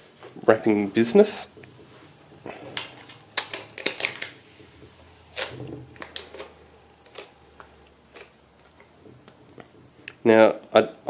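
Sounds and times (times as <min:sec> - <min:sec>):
adhesive wrapping crackling: 0:05.2 - 0:07.4.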